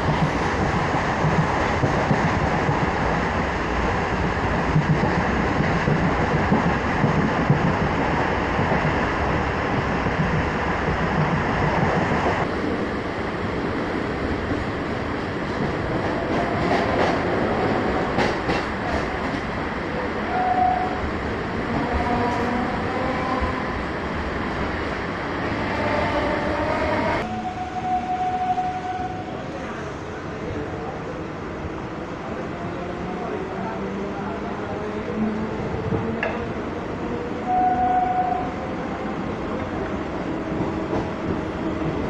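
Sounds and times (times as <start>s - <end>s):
train wheels clattering on rails: 4.2s - 9.1s, 15.2s - 19.6s, 35.8s - 36.7s.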